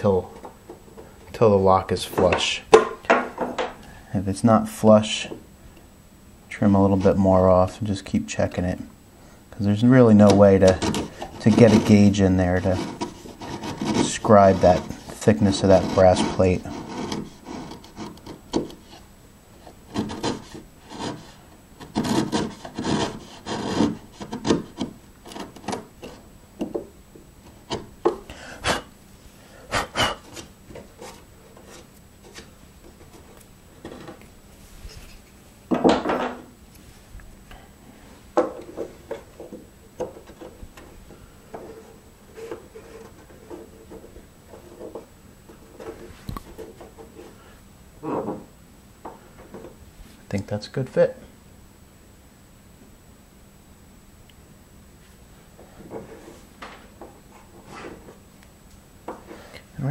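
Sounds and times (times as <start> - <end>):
hand tool scraping wood: 10.0 - 26.3, 29.6 - 34.2, 38.5 - 48.3.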